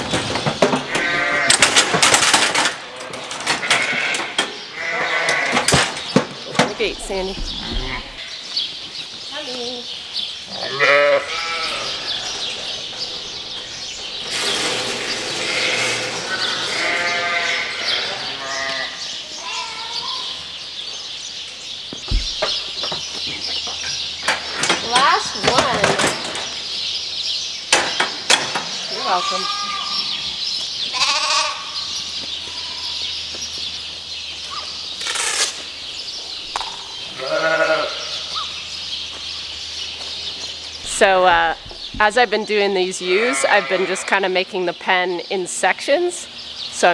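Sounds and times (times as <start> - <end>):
sheep bleating: 0.9 - 1.6, 3.6 - 5.7, 10.5 - 12.4, 15.4 - 20.2, 28.9 - 30.2, 30.9 - 31.8, 37.2 - 38.3, 43.0 - 44.2.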